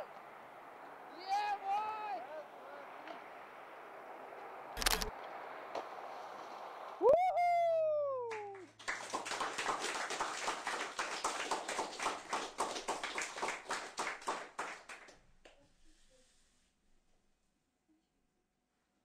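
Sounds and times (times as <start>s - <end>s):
rapid irregular clicking: 4.8s - 5.1s.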